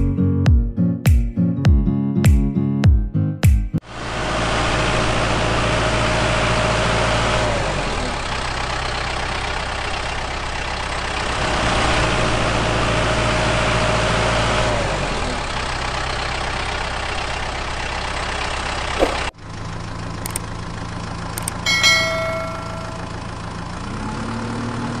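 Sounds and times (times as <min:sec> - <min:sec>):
heavy engine idling: 0:03.9 - 0:25.0
sharp clicks: 0:20.2 - 0:20.5, 0:21.4 - 0:21.6
bell ding: 0:21.6 - 0:23.4.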